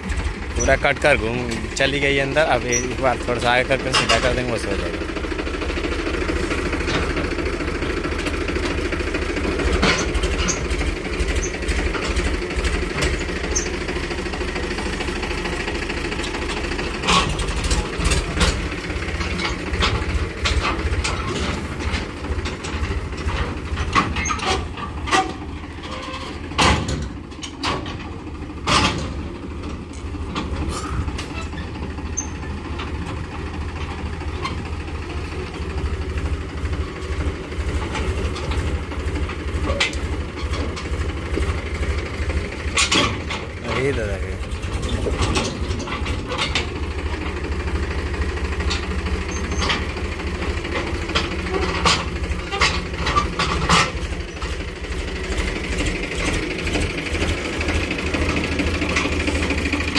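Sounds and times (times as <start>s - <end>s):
tractor diesel engine running: 0.0s - 59.9s
sharp knocks and clanks: 16.2s - 33.2s, 42.6s - 47.4s.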